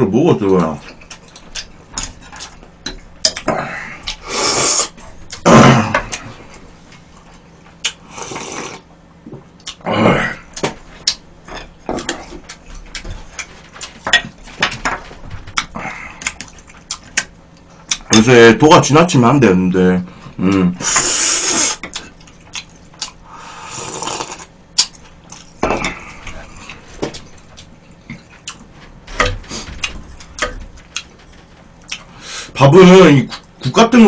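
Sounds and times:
chewing clicks and smacks: 0:07.7 - 0:08.0, 0:15.5 - 0:18.2, 0:21.8 - 0:23.2, 0:24.8 - 0:25.6.

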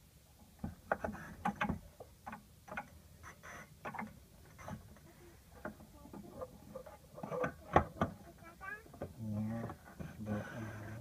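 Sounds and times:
plastic parts clicking and scraping: 0:00.6 - 0:08.2.

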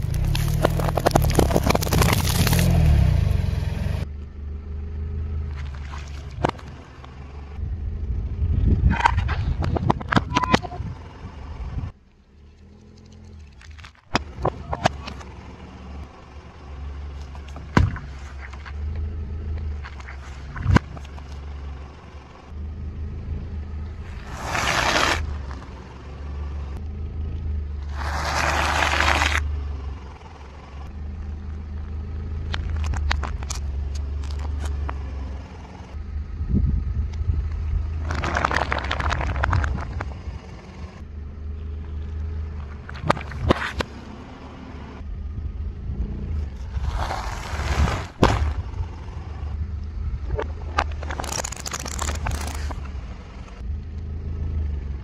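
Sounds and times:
sharp pops and cracks: 0:00.0 - 0:02.9, 0:50.3 - 0:52.9
objects crushed under tyre: 0:00.0 - 0:03.1, 0:27.9 - 0:29.4, 0:38.0 - 0:40.1, 0:46.7 - 0:48.8
car engine running low: 0:00.0 - 0:55.0.

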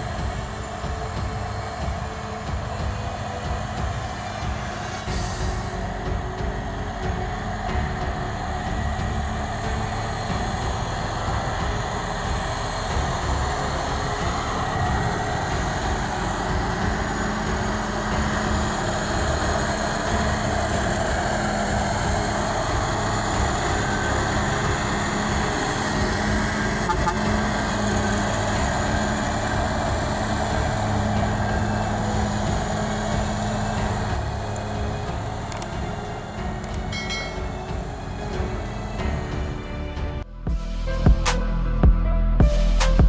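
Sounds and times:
lorry diesel engine under load: 0:00.0 - 0:43.0.

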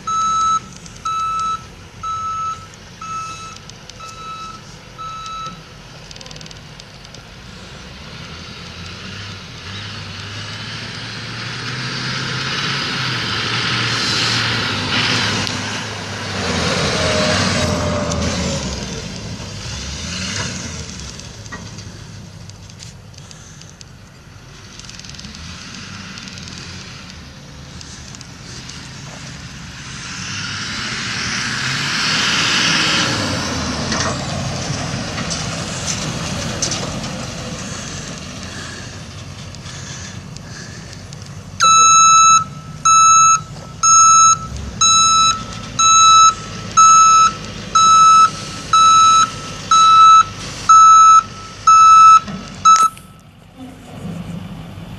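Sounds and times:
truck backup alarm beeping: 0:00.0 - 0:05.8, 0:41.6 - 0:53.3
truck driving past: 0:00.0 - 0:54.9.

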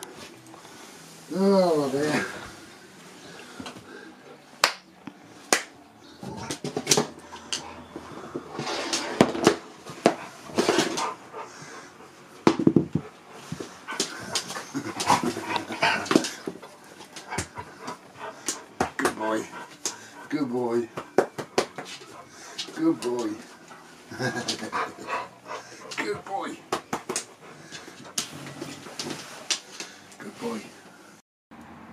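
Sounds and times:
dog grumbling and whining: 0:13.8 - 0:16.6.

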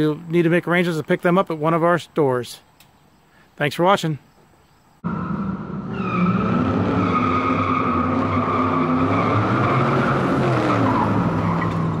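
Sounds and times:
high-revving car engine: 0:05.0 - 0:12.0
tires squealing: 0:05.0 - 0:12.0.

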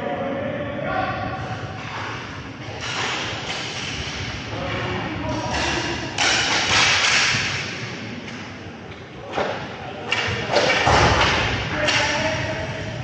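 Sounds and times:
hockey sticks and puck hitting boards: 0:02.0 - 0:08.5, 0:09.3 - 0:12.8.

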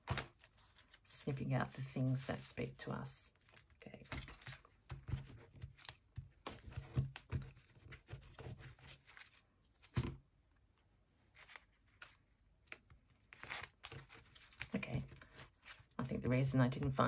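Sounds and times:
paper rustling and crackling: 0:00.0 - 0:01.1, 0:03.3 - 0:10.2, 0:11.2 - 0:16.0.

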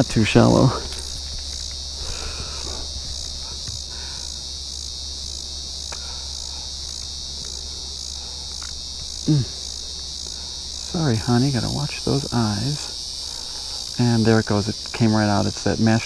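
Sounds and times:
insects chirring: 0:00.0 - 0:16.0
brief vocal sound: 0:09.3 - 0:09.6.

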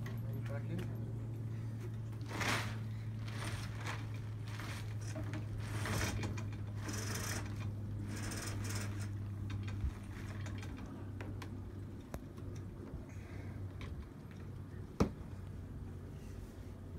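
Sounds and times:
steady low hum: 0:00.0 - 0:16.9
furling line clicks and rattles: 0:01.8 - 0:12.9
tarpaulin sail rustling and flapping: 0:02.1 - 0:11.1.

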